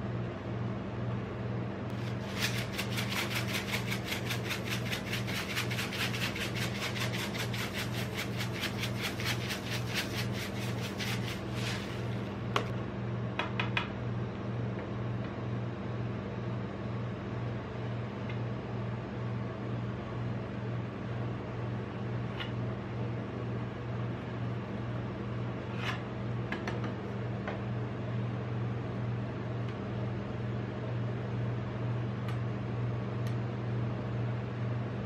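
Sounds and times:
refrigeration unit hum: 0.0 - 35.0
sprinkles shaken rattle: 2.0 - 12.2.

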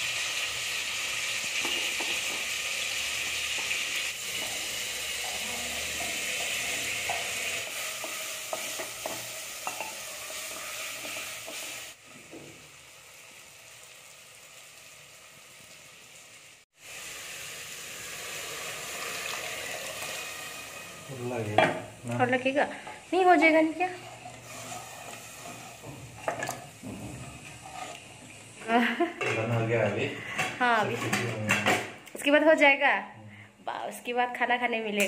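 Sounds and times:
vegetables sizzling in oil: 0.0 - 32.8
spatula scraping pot: 4.3 - 11.8, 22.8 - 28.4.

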